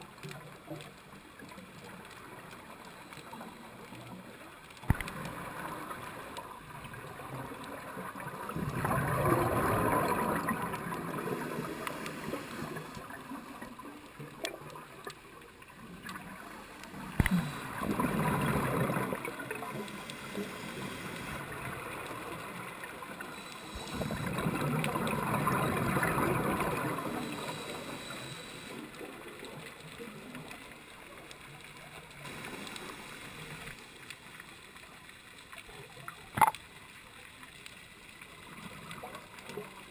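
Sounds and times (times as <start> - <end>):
underwater exhaled bubbles rushing: 3.4 - 31.2.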